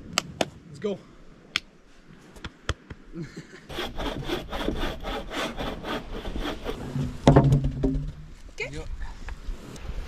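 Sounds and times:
hand saw cutting a log: 3.7s - 7.1s
sharp knocks: 7.0s - 8.3s.

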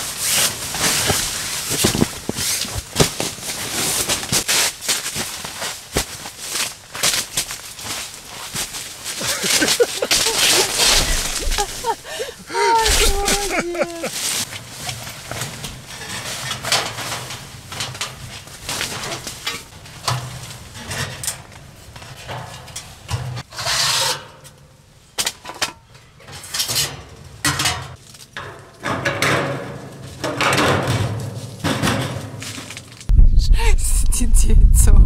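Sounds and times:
rustling: 0.0s - 19.7s.

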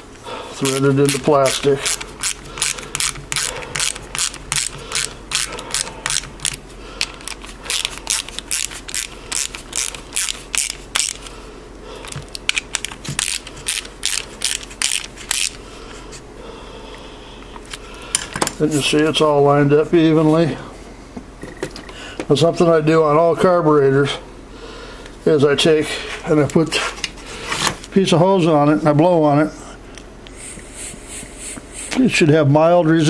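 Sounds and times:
ratchet clicking: 0.7s - 6.6s, 7.2s - 11.2s, 12.5s - 15.6s.

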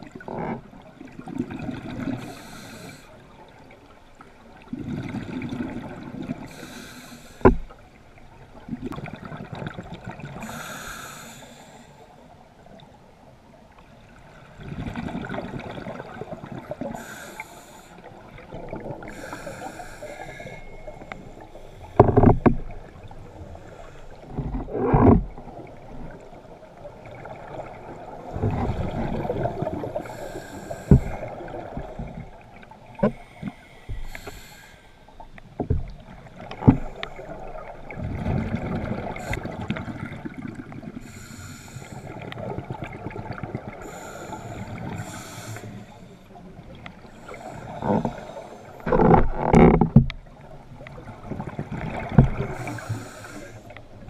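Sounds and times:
exhaled bubbles gurgling: 0.0s - 3.7s, 4.5s - 6.8s, 14.3s - 34.5s, 35.6s - 41.2s, 41.9s - 45.5s, 46.5s - 54.0s
diver breathing through regulator: 2.1s - 3.1s, 6.5s - 7.7s, 10.4s - 12.1s, 16.8s - 18.2s, 19.0s - 22.3s, 29.9s - 32.0s, 33.0s - 35.3s, 39.1s - 39.8s, 41.0s - 42.4s, 43.8s - 46.3s, 47.1s - 49.1s, 52.2s - 53.8s.

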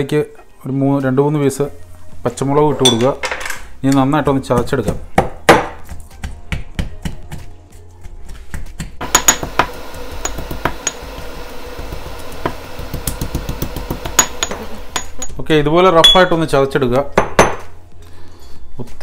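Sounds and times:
pestle pounding in a marble mortar: 4.4s - 7.4s, 8.3s - 15.2s.

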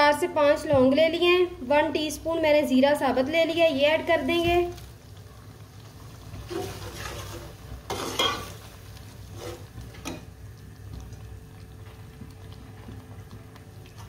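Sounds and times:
soft sizzle: 0.0s - 14.0s
metal spatula scraping pot: 6.5s - 8.6s, 9.3s - 10.2s.

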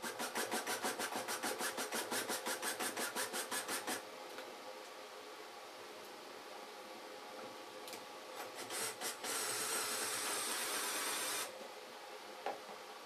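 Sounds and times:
cordless drill drilling: 8.6s - 11.5s.

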